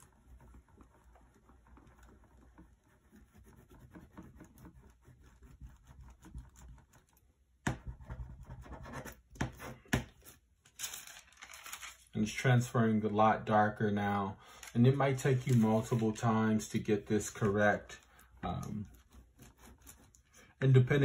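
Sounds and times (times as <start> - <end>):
spoon rubbing on paper: 0.0 - 6.8, 14.5 - 20.6.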